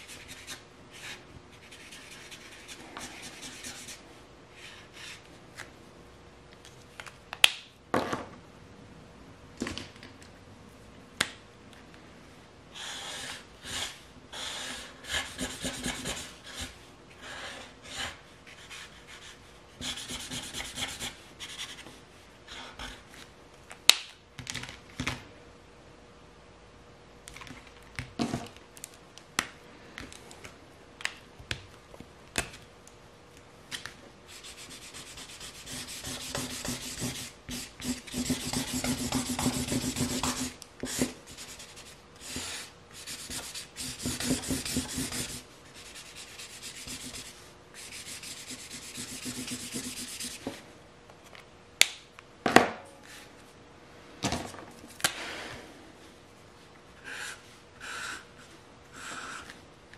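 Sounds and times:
marker scribbling on paper: 0.0s - 4.0s, 15.1s - 16.7s, 17.8s - 21.9s, 34.3s - 50.4s.

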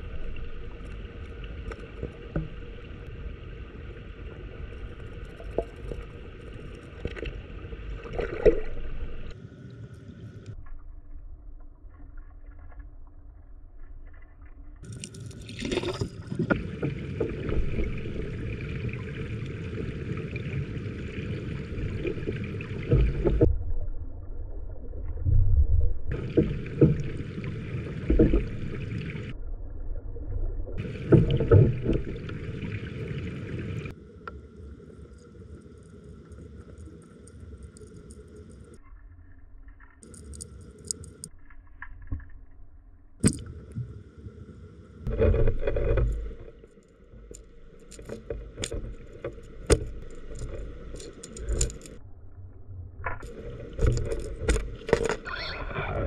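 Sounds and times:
muffled underwater stream rushing: 0.0s - 38.8s, 43.2s - 56.0s
splashy gurgles: 15.4s - 23.5s.

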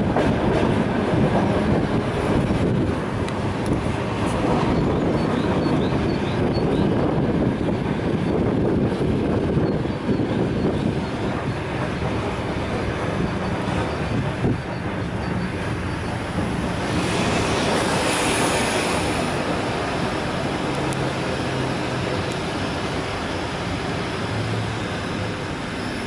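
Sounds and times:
train wheels rumbling on rails: 0.0s - 26.0s
rushing hiss: 16.8s - 24.7s.

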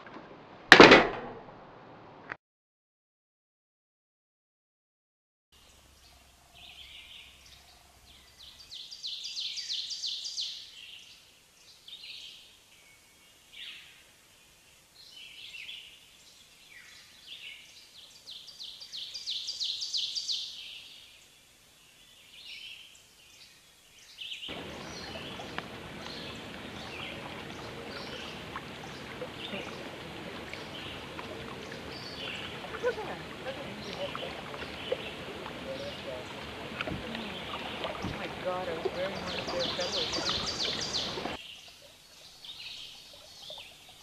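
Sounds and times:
songbirds chirping and trilling: 5.6s - 44.0s
water lapping at shore: 24.5s - 44.0s.

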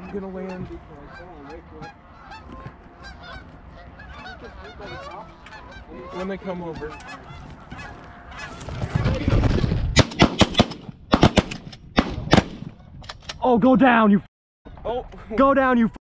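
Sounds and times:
geese honking: 0.0s - 9.7s
shotgun shots: 10.0s - 12.8s.

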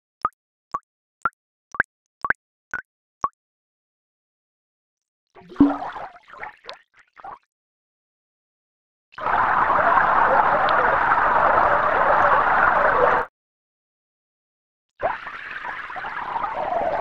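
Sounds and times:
water pouring into a tank: 5.4s - 7.4s, 15.0s - 17.0s
water splash with bubbly plops: 5.4s - 7.5s.

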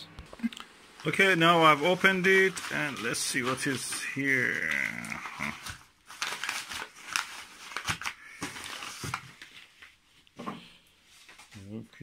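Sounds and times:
plastic mailing bag rustling: 0.9s - 10.1s.

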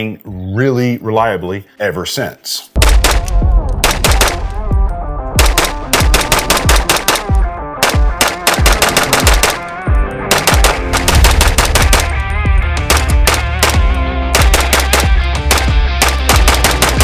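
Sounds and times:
background music: 0.0s - 17.0s
pistol firing rapid shots: 2.8s - 4.5s, 5.4s - 12.2s, 12.8s - 17.0s.

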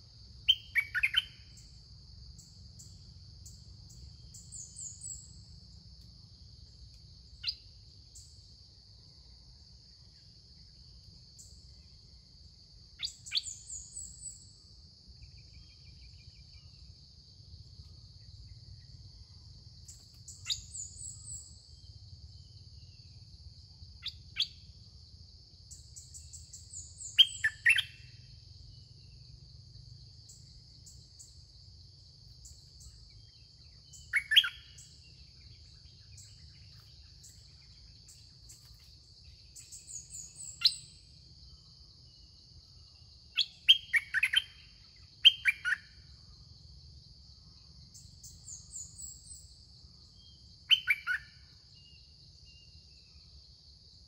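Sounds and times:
songbirds singing: 0.0s - 1.8s, 2.4s - 8.5s, 13.0s - 17.1s, 17.7s - 23.2s, 25.7s - 46.4s, 47.6s - 53.5s
insect drone: 0.0s - 54.0s
thin high bird chirps: 0.5s - 1.4s, 26.8s - 28.1s, 33.9s - 34.8s.

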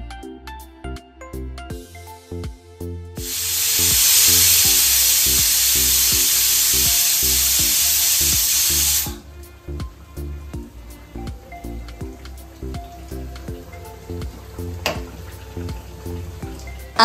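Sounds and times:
pressure cooker whistling: 3.3s - 9.2s.

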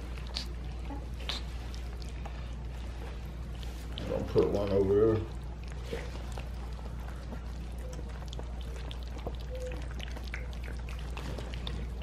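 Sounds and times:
puppies lapping wet food: 0.0s - 12.0s
steady low hum: 0.0s - 12.0s.

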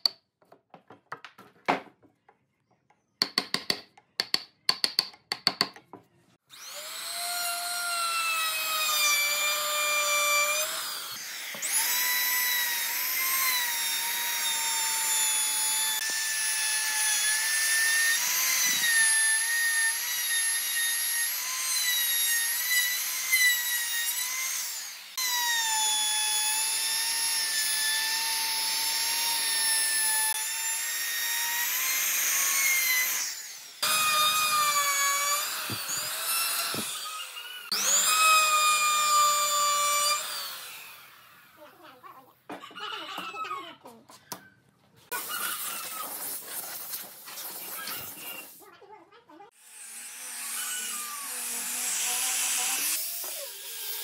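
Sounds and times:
wood router whining: 6.5s - 41.6s, 49.6s - 54.0s.

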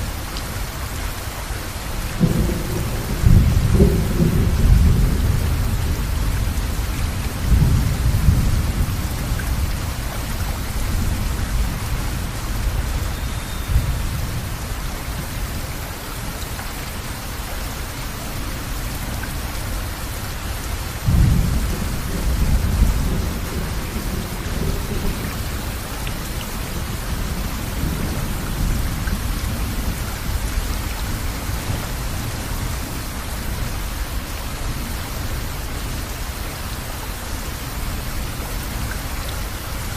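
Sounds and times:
steady rain: 0.0s - 39.9s
rolling thunder: 2.2s - 14.6s, 21.0s - 32.8s.

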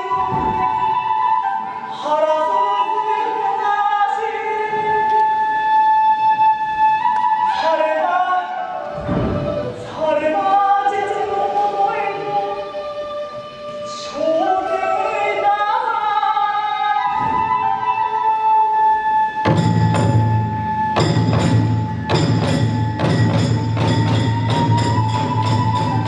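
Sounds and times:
bamboo flute: 0.0s - 26.0s
chanted vocal line: 7.6s - 17.9s.

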